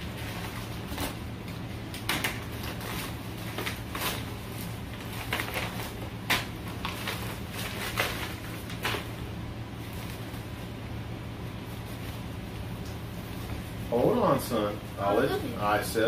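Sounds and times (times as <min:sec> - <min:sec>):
plastic and paper crinkling: 0:00.0 - 0:10.7.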